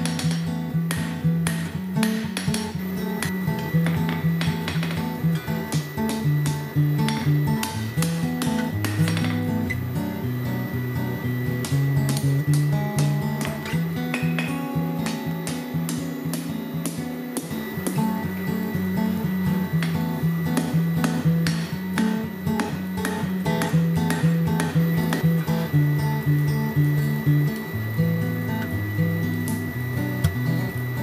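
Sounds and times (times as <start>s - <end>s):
sharp knocks: 0.0s - 2.8s
hammer blows on anvil: 0.0s - 9.6s
guitar music with low notes: 0.0s - 31.0s.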